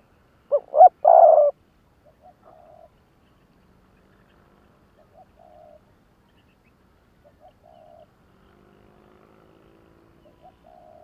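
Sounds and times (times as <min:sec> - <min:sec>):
small birds chirping: 0:00.0 - 0:11.0
dove cooing: 0:00.5 - 0:02.9, 0:05.0 - 0:05.8, 0:07.2 - 0:08.1, 0:10.2 - 0:11.0.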